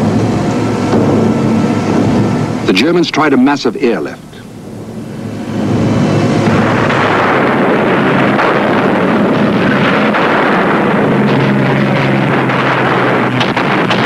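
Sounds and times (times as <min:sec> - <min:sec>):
low engine drone: 0:00.0 - 0:14.0
propeller aircraft engines rumbling: 0:00.0 - 0:14.0
anti-aircraft gunfire: 0:05.7 - 0:14.0.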